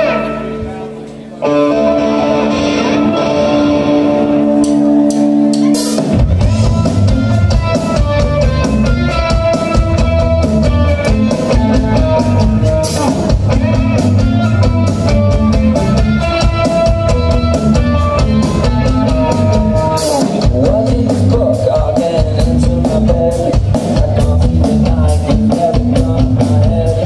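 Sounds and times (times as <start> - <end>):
held guitar chord ringing: 0.0 - 5.6
rock band playing live: 0.0 - 27.0.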